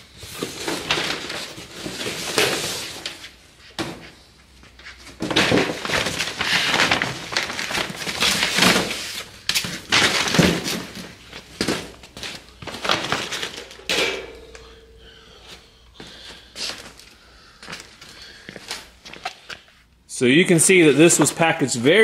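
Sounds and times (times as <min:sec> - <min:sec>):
packing materials crinkling: 0:05.2 - 0:13.9.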